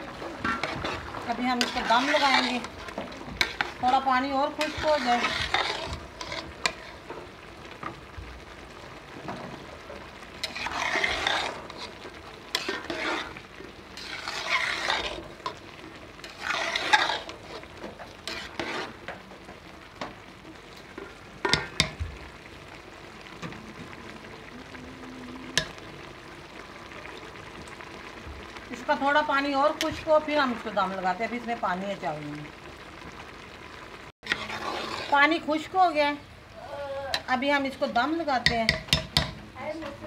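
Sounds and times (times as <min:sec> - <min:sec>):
metal spatula scraping pot: 0:00.0 - 0:07.3, 0:10.4 - 0:19.2, 0:21.0 - 0:22.0, 0:29.2 - 0:30.6, 0:34.2 - 0:35.9, 0:38.3 - 0:39.4
spatula knocking against pot: 0:38.4 - 0:39.4.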